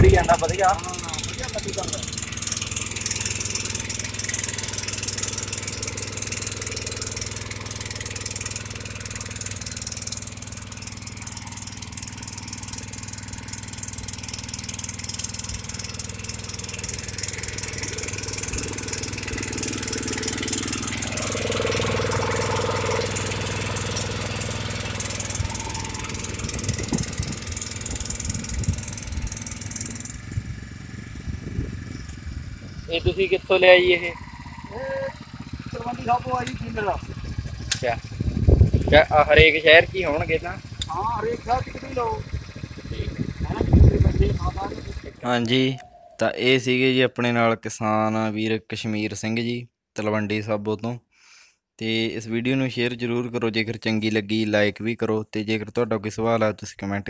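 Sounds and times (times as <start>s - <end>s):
petrol engine running under load: 0.0s - 45.3s
rotary tiller churning wet soil: 0.0s - 45.3s.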